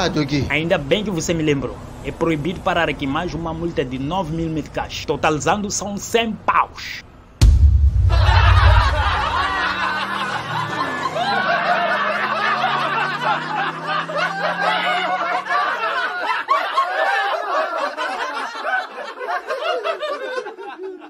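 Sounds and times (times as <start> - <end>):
crowd laughing: 8.0 - 21.0.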